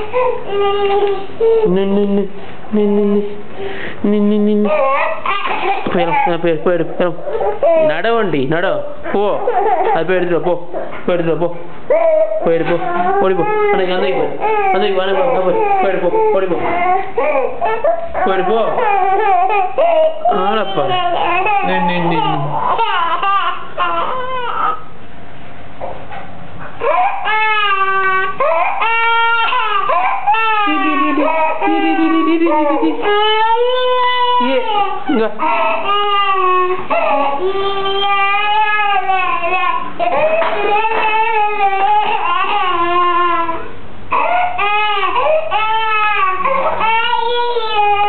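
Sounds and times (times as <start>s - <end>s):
toddler crying: 0.0s - 1.7s, 4.6s - 6.5s, 7.3s - 8.1s, 9.3s - 10.2s, 11.9s - 24.9s, 26.8s - 48.0s.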